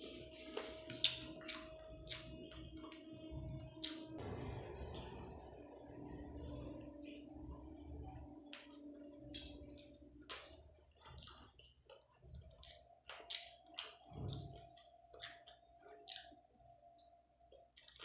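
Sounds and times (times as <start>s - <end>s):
wet mouth eating sounds: 0.5s - 3.0s, 3.8s - 4.2s, 8.5s - 16.5s.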